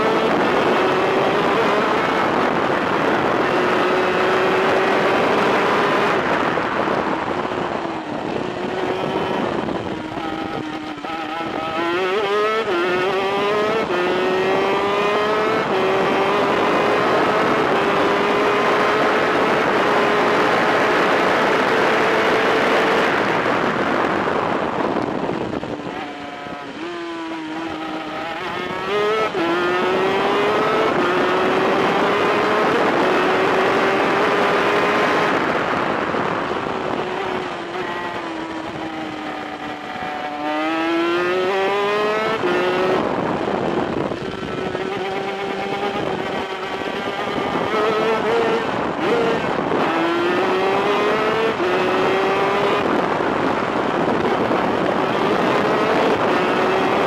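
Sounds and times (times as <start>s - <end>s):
two-stroke kart engine racing: 0.0s - 57.0s.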